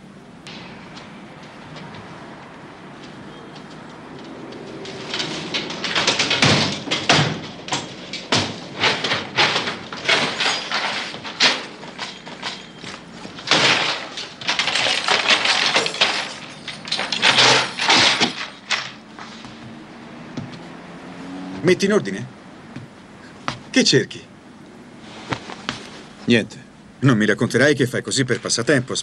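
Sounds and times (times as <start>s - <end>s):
wooden knocks and clatters: 3.0s - 21.2s.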